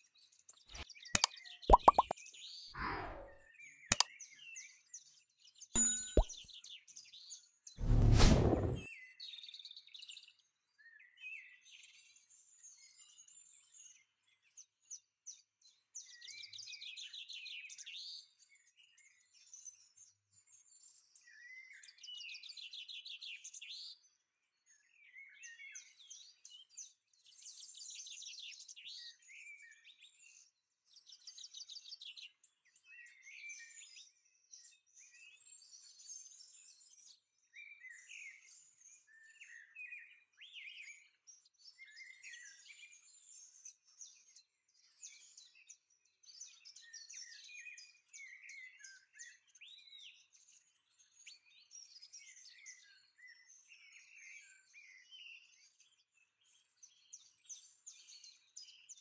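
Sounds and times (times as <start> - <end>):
loud thump: 7.8 - 8.8.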